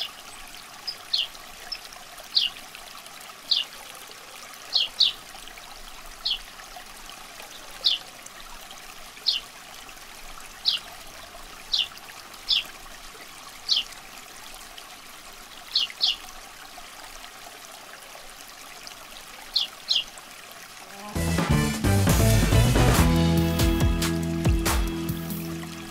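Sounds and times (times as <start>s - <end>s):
water trickling: 0.0s - 21.3s, 23.4s - 25.9s.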